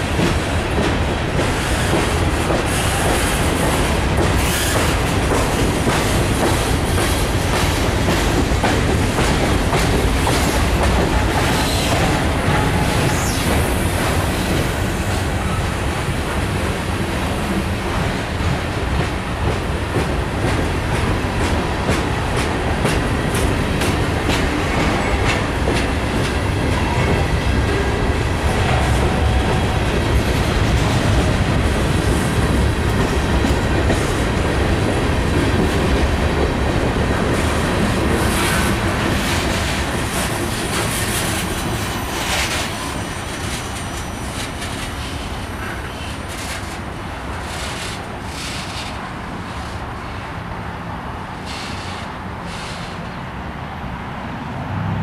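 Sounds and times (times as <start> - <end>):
wheels clacking over rail joints: 0.0 - 15.3
train rumbling: 0.0 - 55.0.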